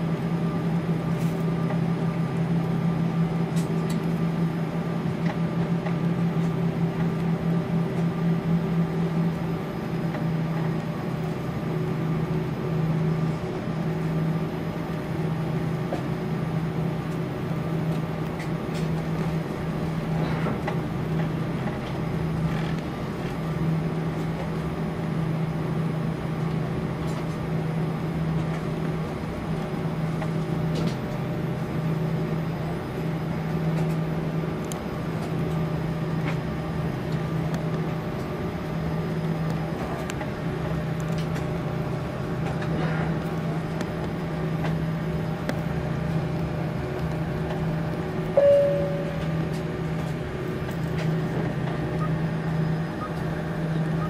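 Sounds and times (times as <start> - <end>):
aircraft cabin engine hum: 0.0 - 54.0
loud tone: 48.4 - 49.5.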